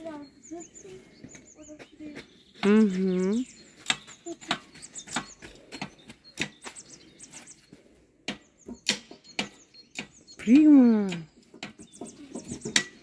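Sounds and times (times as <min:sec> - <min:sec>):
birds chirping: 0:00.0 - 0:13.0
sharp clicks and knocks: 0:08.3 - 0:13.0.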